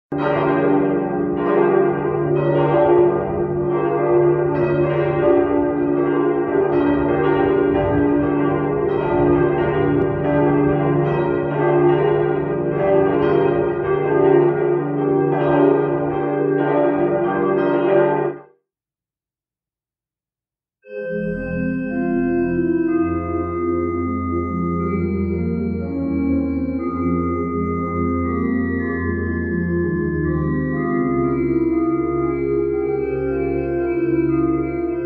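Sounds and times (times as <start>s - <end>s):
church bells ringing: 0.1s - 18.4s, 21.2s - 35.0s.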